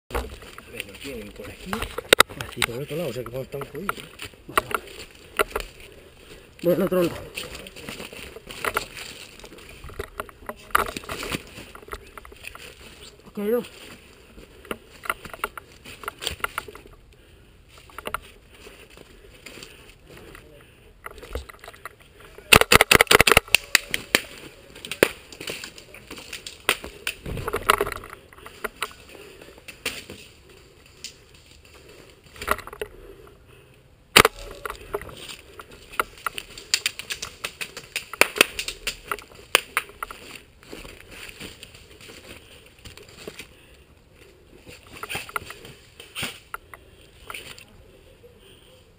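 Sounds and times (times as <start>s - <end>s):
footsteps crackling dry leaves: 0.2s - 16.8s, 22.4s - 27.8s, 34.3s - 47.7s.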